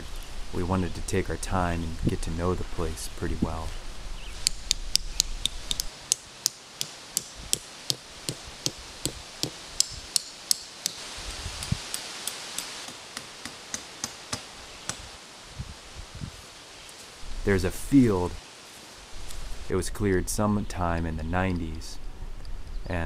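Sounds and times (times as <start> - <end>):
hammer tapping tent stakes: 4.4 - 11.0, 11.6 - 15.1.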